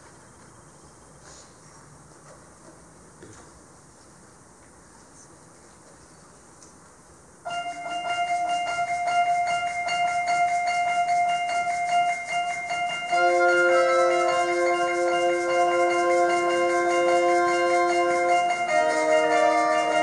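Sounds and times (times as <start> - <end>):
wind band playing: 7.5 - 20.0.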